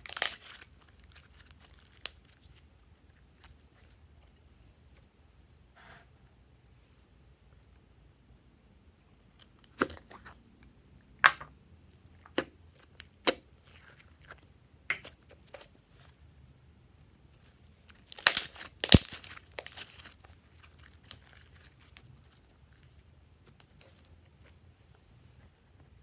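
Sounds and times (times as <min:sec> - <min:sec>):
slime crackling squelches: 0:00.0 - 0:05.1, 0:11.9 - 0:16.5, 0:17.1 - 0:25.0.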